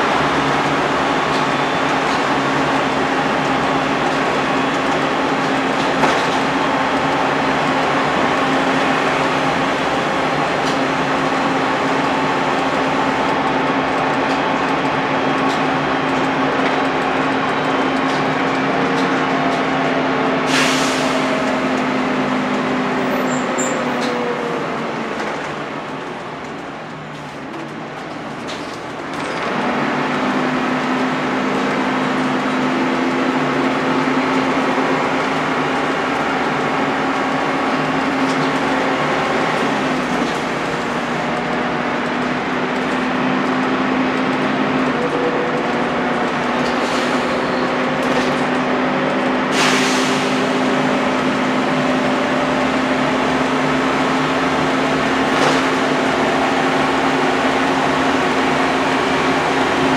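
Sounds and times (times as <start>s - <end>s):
bus engine drone and whine: 0.0s - 59.9s.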